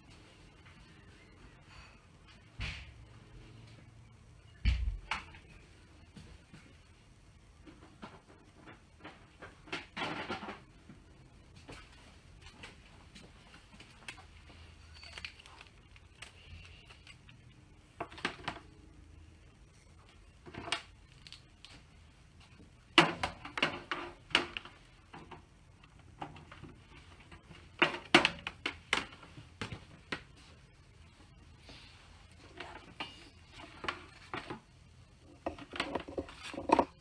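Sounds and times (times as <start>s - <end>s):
computer cables clicking and knocking: 22.9s - 30.3s, 32.6s - 37.0s.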